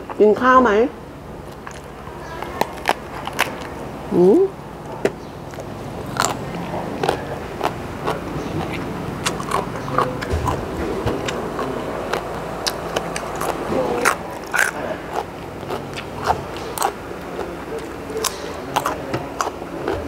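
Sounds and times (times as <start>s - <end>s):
person chewing crunchy vegetables: 1.4s - 4.0s, 4.8s - 20.0s
mouth clicks: 5.0s - 20.0s.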